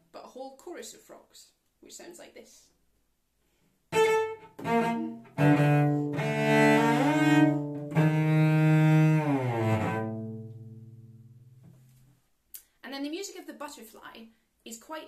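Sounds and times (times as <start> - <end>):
bowed cello notes: 3.9 - 11.6.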